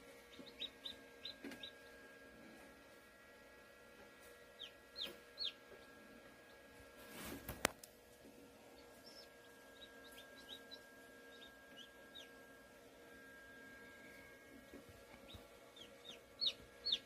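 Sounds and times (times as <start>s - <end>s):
incubator fan hum: 0.0s - 17.0s
chick peeping: 0.3s - 2.0s, 4.6s - 6.6s, 8.7s - 12.5s, 14.7s - 17.0s.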